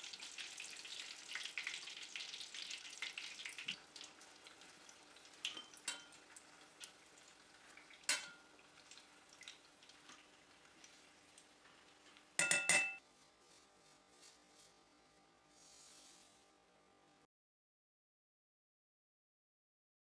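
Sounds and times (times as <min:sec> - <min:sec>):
faint frying sizzle: 0:00.0 - 0:16.7
metal spoon clinking on saucepan: 0:05.5 - 0:06.2, 0:08.0 - 0:08.5, 0:12.4 - 0:13.0.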